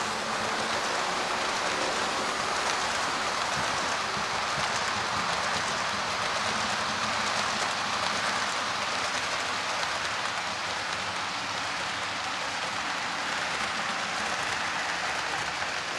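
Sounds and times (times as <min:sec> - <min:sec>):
model train wheels rattling on rails: 0:00.0 - 0:15.9.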